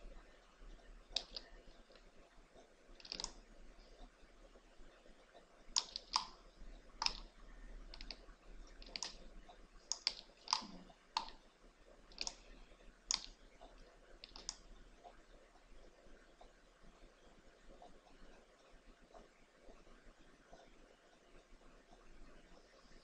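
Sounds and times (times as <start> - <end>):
mouse and keyboard clicks: 1.1 - 2.0, 3.0 - 3.4, 5.7 - 6.4, 7.0 - 7.3, 7.9 - 9.2, 9.9 - 11.4, 12.1 - 12.5, 13.1 - 13.4, 14.2 - 14.6.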